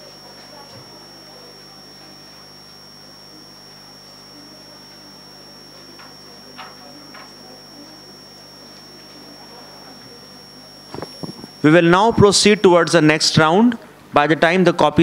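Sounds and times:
electrical hum with high whine: 0:00.0 - 0:15.0.

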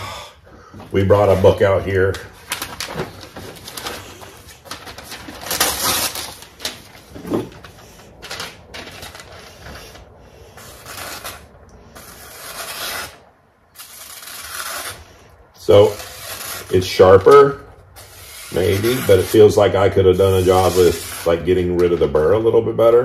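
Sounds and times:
paper rustling: 0:00.7 - 0:11.4
knife slicing paper: 0:10.6 - 0:13.2, 0:13.8 - 0:21.8.

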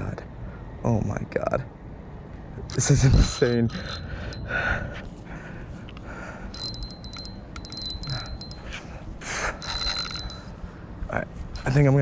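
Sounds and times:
thin ring: 0:02.6 - 0:05.2, 0:06.5 - 0:12.0
fishing reel drag clicking: 0:02.7 - 0:04.4, 0:06.5 - 0:08.7, 0:09.6 - 0:10.5.

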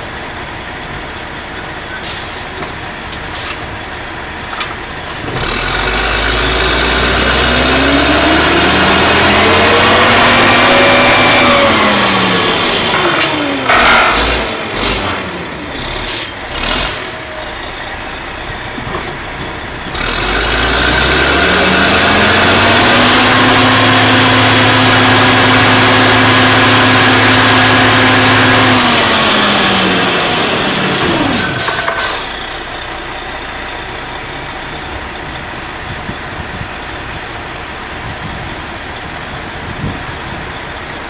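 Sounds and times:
rig engine revving: 0:05.0 - 0:36.6.

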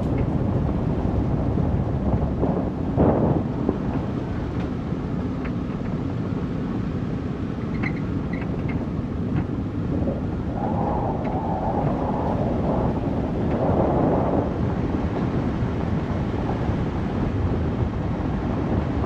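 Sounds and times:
vehicle rumbling on dirt road: 0:00.0 - 0:19.0.

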